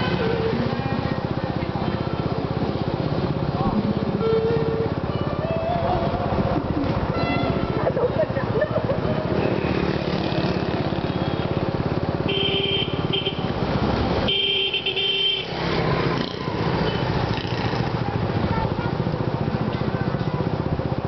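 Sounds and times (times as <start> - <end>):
small motorbike engine running: 7.4 - 13.6, 15.6 - 21.0.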